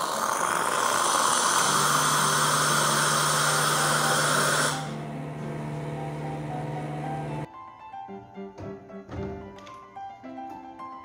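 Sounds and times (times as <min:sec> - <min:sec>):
hot water and steam hissing: 0:00.0 - 0:05.0.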